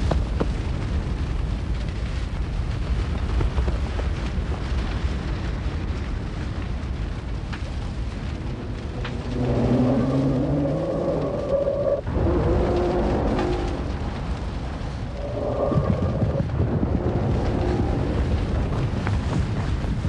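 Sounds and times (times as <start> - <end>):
fire crackles: 0.0 - 20.0
large fire rumbling: 0.0 - 20.0.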